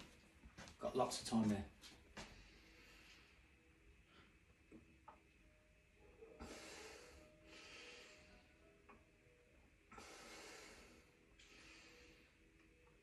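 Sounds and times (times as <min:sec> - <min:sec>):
heavy breathing through nose: 0:06.4 - 0:08.5, 0:09.9 - 0:12.5.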